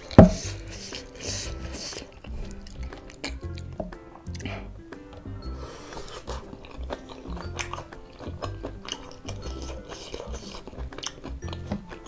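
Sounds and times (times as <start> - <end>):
background music with bass line: 0.0 - 12.0
chewing and biting food: 0.0 - 12.0.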